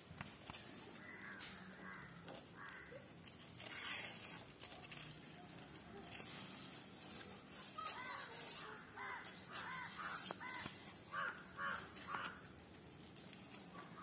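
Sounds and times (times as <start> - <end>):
crow cawing: 1.0 - 4.2, 7.8 - 12.5.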